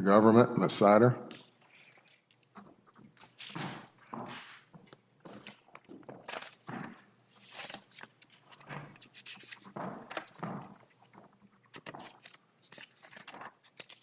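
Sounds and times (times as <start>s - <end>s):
footsteps: 1.2s - 7.5s, 8.4s - 12.3s.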